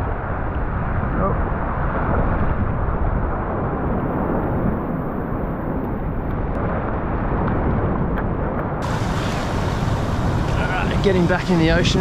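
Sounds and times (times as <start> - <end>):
wind noise on microphone: 0.0 - 12.0
waves surging over rocks: 8.8 - 12.0.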